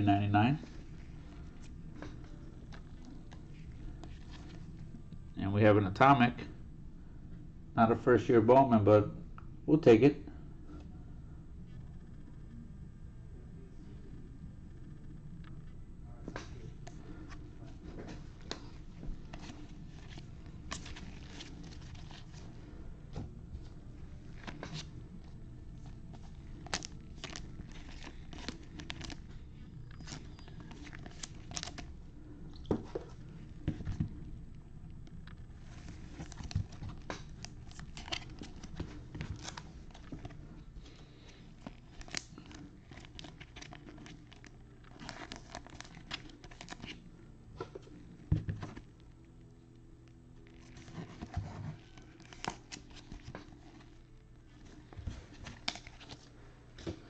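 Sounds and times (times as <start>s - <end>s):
foil wrappers crinkling and tearing: 26.1s - 31.9s, 35.6s - 47.0s, 50.4s - 54.0s, 55.3s - 56.3s.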